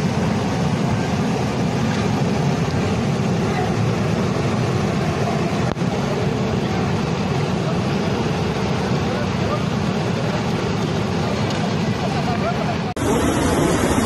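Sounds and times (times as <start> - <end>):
flood torrent rushing: 0.0 - 14.0.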